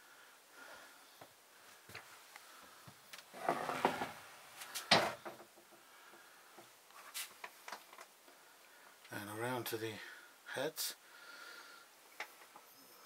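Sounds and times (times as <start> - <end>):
door scraping rustle: 3.3 - 5.3.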